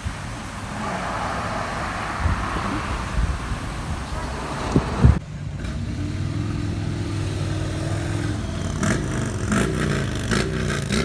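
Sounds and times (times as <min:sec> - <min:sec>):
motorcycle engines running: 0:03.9 - 0:11.0.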